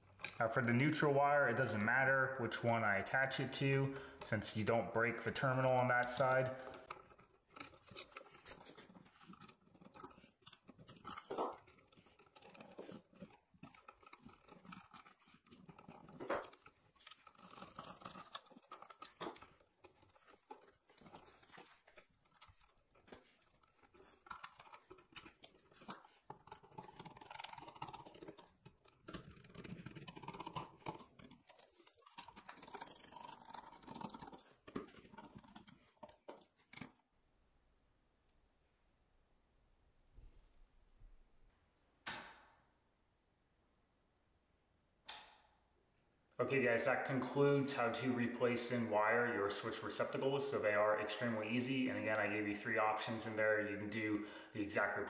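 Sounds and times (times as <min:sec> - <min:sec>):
hands working on wall receptacle: 0:03.4 - 0:37.1.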